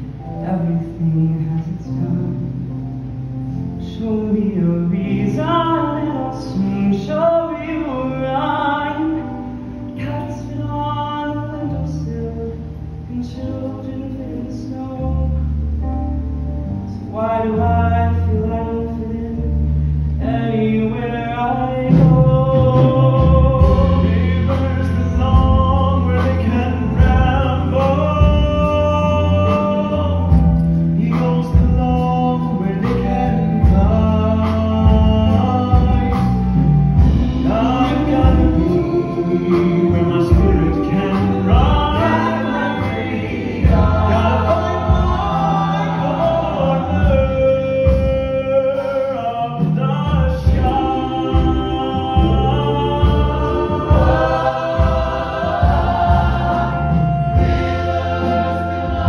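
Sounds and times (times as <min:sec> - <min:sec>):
musical accompaniment with bass: 0:00.0 - 0:59.0
man singing into microphone: 0:03.8 - 0:09.4, 0:10.0 - 0:15.5, 0:20.2 - 0:55.0.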